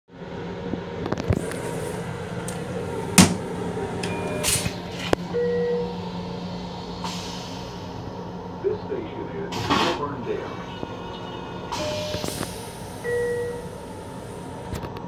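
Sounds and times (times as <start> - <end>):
rail car hum: 0.1 - 15.0
toilet seat clicks: 3.2 - 3.4
two-tone electronic tones: 13.0 - 13.7.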